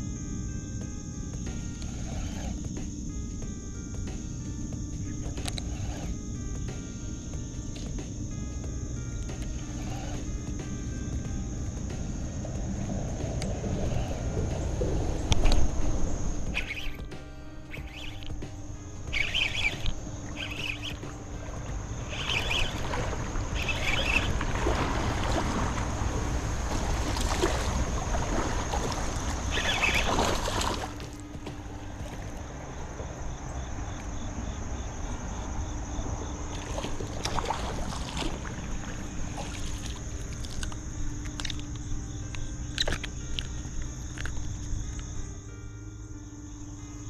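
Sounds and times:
fish thrashing and splashing: 19.1s - 31.1s, 36.6s - 40.7s
sharp water splashes: 19.1s - 31.1s, 36.5s - 40.8s.

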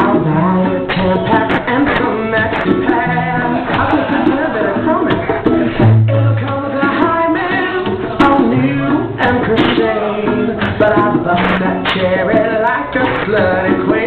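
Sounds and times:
band music: 0.0s - 14.0s
person singing: 0.0s - 14.0s.

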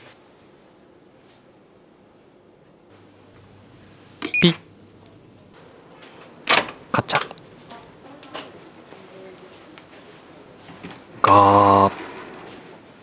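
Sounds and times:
key-card lock beep: 4.2s - 4.6s
door latch clicking: 6.5s - 7.4s.

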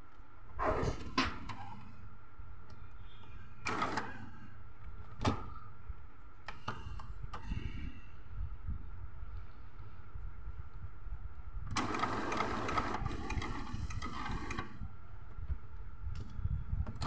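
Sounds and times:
steady low hum: 0.0s - 17.0s
printer mechanism whirring: 3.6s - 4.4s, 11.7s - 14.8s.

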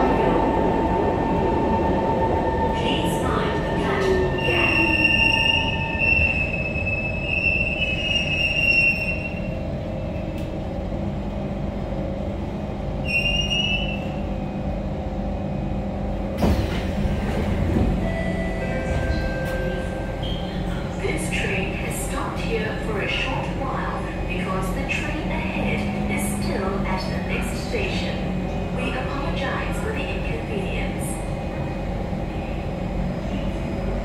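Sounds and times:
metro train rumbling: 0.0s - 34.0s
wheel squeal: 13.0s - 14.1s.

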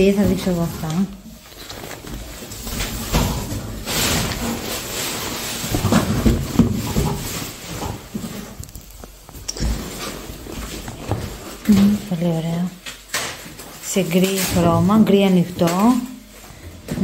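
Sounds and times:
fabric rustling: 0.0s - 12.5s.

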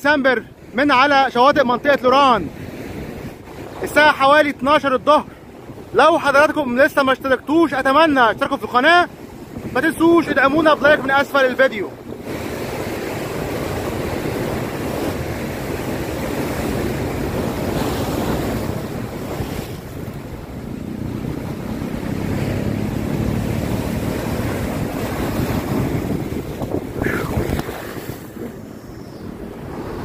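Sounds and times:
surf breaking over rocks: 0.2s - 30.0s
wind on microphone: 2.2s - 3.9s, 9.0s - 30.0s.

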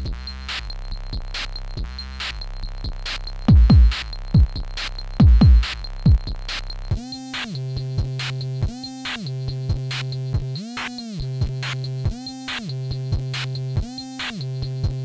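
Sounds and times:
steady electronic beat: 0.0s - 15.0s.

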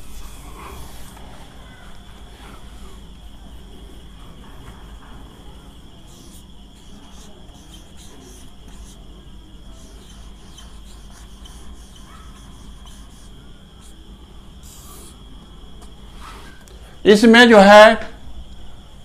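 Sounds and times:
marker pen writing on whiteboard: 0.0s - 1.3s, 3.4s - 14.0s.

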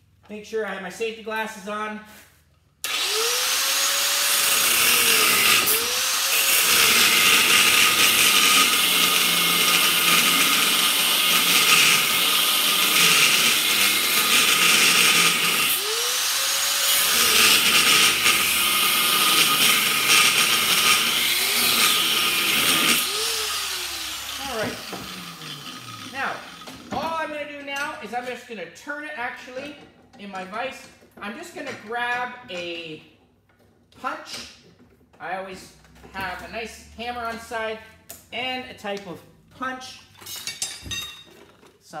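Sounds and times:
electric grinder whining: 2.8s - 26.9s
grinding disc hissing on metal: 5.7s - 26.9s.

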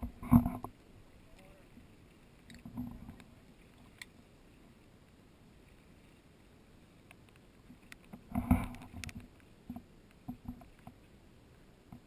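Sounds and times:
faint ticks: 0.0s - 4.2s, 7.0s - 11.1s
faint steady rumble: 0.0s - 12.0s.

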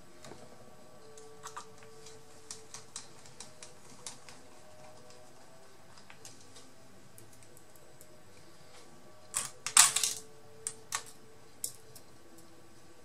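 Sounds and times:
parts clattering: 9.3s - 11.8s
small parts clicking: 9.3s - 12.5s.

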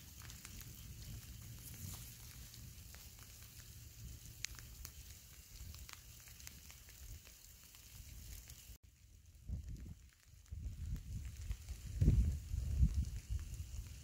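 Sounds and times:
thin hiss: 0.0s - 8.8s
small clicks and crackles: 0.0s - 14.0s.

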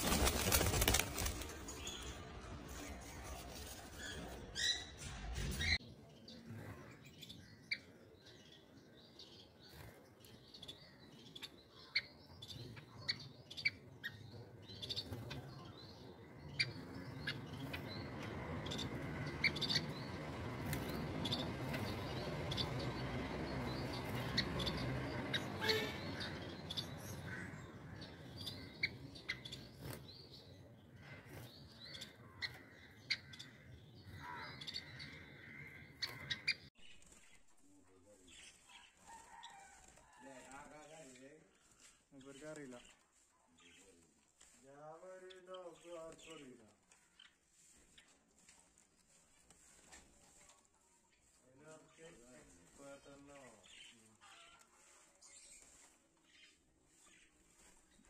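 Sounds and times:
finches chirping: 7.1s - 37.4s.

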